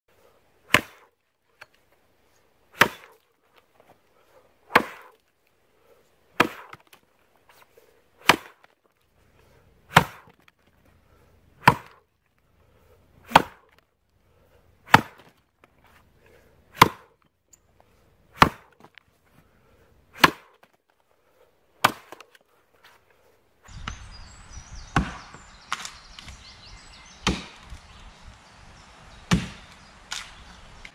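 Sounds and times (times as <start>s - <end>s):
axe chopping into log: 0.7s - 1.1s, 2.8s - 3.2s, 4.7s - 5.2s, 6.4s - 7.0s, 8.2s - 8.7s, 9.9s - 10.5s, 11.6s - 12.0s, 13.2s - 13.8s, 14.8s - 15.4s, 16.7s - 17.2s, 18.3s - 18.9s, 20.2s - 20.7s, 21.8s - 22.3s, 24.9s - 26.4s, 27.2s - 27.8s, 29.3s - 30.4s.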